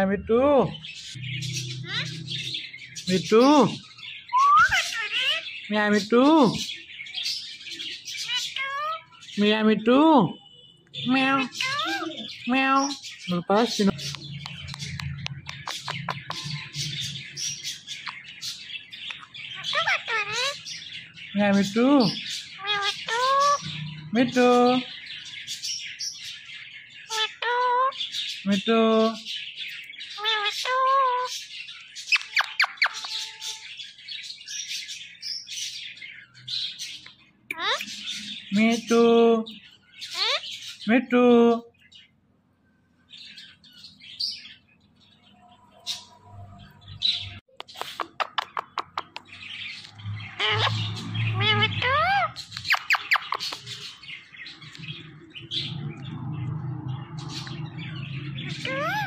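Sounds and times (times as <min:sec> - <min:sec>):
parrot chattering squawks: 0:01.0 - 0:09.4, 0:11.0 - 0:25.7, 0:27.0 - 0:28.4, 0:29.8 - 0:33.7, 0:37.5 - 0:38.5, 0:40.0 - 0:40.8, 0:46.8 - 0:54.0, 0:58.4 - 0:59.0
parakeet whistled chirps: 0:04.2 - 0:05.4.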